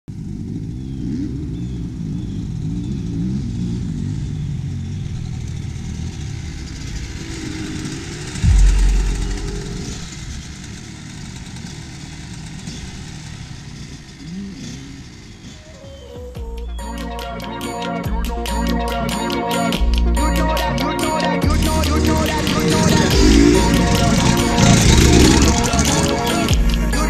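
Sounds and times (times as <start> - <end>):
dirt bike engines revving: 0.1 - 17.7, 18.3 - 27.0
loud low rumble: 8.4 - 10.8.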